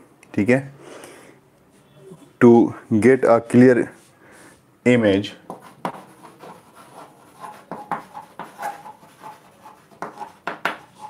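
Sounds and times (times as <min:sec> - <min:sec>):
chalk tapping and scratching on blackboard: 0:05.4 - 0:11.0.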